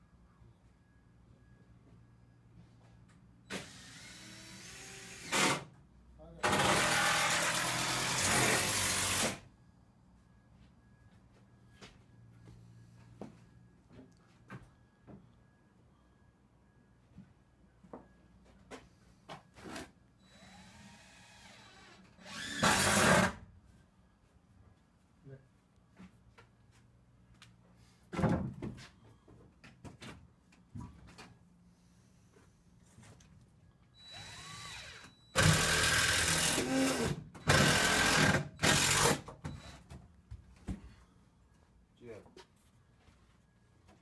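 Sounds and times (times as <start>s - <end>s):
power tool running: 6.4s - 9.4s, 20.3s - 23.4s, 34.1s - 39.2s.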